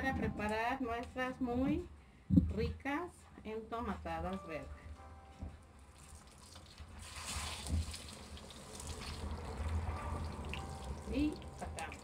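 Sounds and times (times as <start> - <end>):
hot oil sizzling in a frying pan: 6.9 - 12.0.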